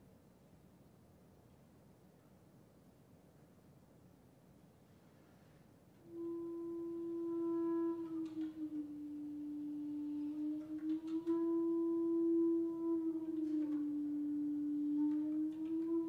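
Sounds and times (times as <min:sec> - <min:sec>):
clarinet long held note: 0:06.0 - 0:16.0.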